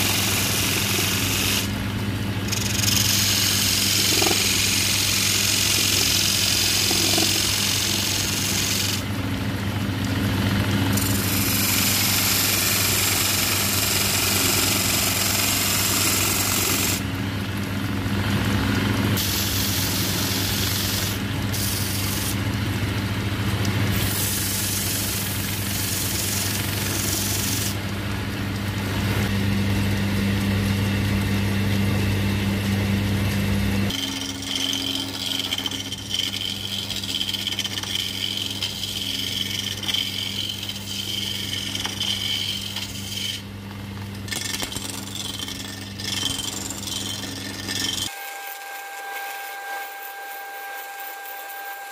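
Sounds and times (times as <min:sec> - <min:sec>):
wood lathe motor hum: 0:00.0 - 0:17.1, 0:24.0 - 0:27.9, 0:33.9 - 0:43.5, 0:44.3 - 0:51.9
gouge cutting wood hiss: 0:02.5 - 0:09.0, 0:19.2 - 0:22.4.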